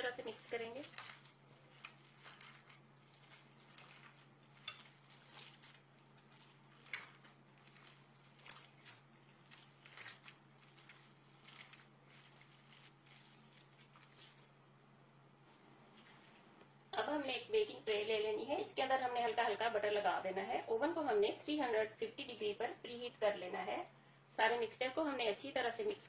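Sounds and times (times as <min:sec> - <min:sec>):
hands squishing mince: 0:00.0 - 0:14.8.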